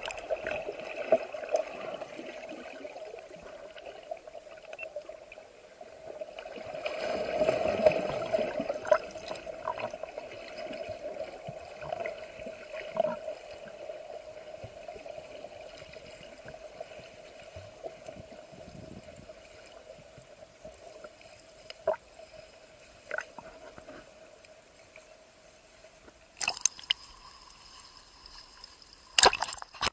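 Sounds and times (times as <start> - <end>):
water splashing: 0.0 - 4.8, 6.1 - 13.9, 26.4 - 29.9
muffled underwater sloshing: 0.0 - 24.4.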